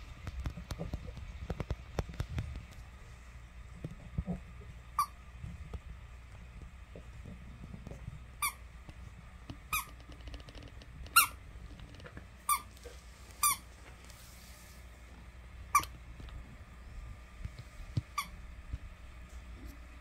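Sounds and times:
squeaky toy squeaking: 11.1 - 11.4, 15.7 - 15.9.

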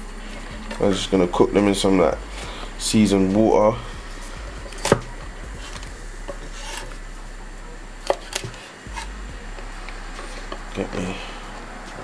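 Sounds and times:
knife chopping on wooden board: 4.6 - 7.0, 8.0 - 9.1.

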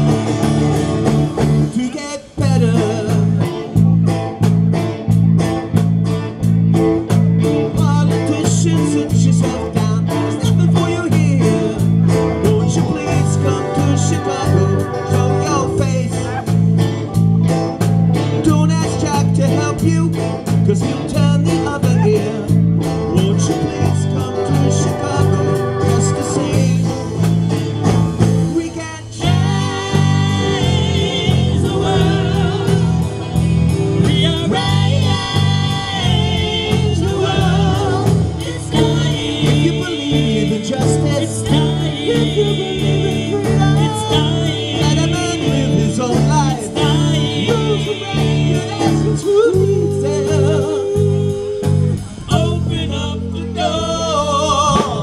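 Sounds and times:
bass guitar: 0.0 - 55.0
electric guitars: 0.0 - 55.0
keyboard: 0.0 - 55.0
person singing: 7.6 - 16.8, 18.5 - 27.5, 33.9 - 55.0.

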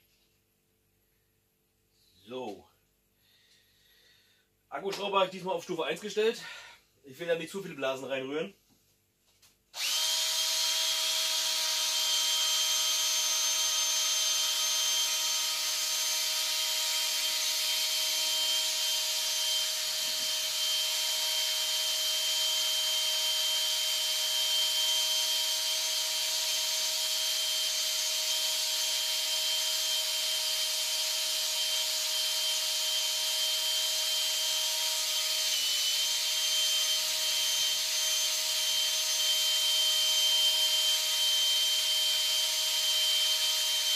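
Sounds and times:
cordless drill motor whine: 9.7 - 43.9.

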